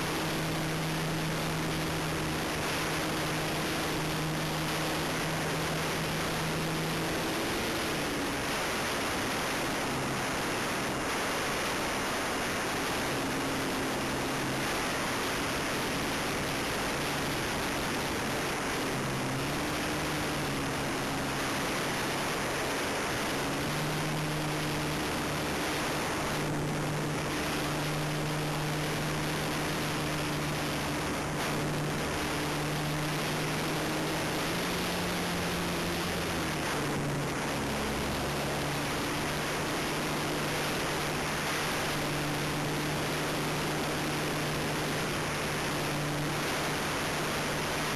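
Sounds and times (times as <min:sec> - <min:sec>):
model airplane motor and propeller hum: 0:00.0 - 0:47.9.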